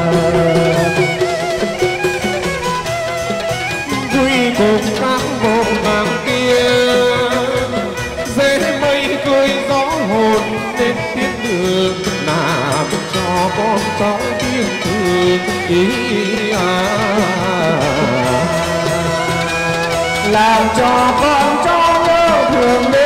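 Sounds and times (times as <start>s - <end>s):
bowed string instrument melody: 0.0s - 23.0s
rhythmic drumming: 0.0s - 23.0s.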